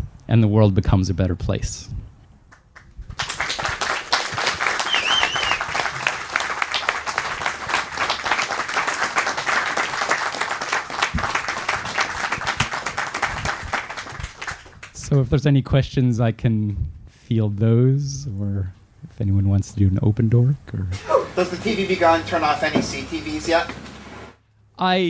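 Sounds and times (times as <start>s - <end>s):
audience applauding: 2.6s - 15.0s.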